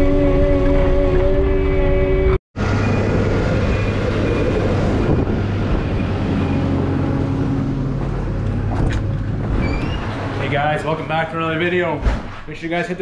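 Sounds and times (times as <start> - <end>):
held hum: 0.0 - 10.5
diesel engine running: 2.6 - 11.6.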